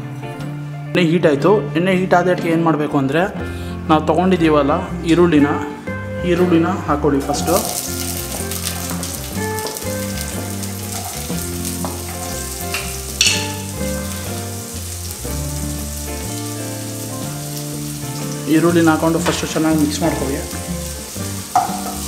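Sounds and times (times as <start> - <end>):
onions sizzling in hot oil: 7.4 - 22.0.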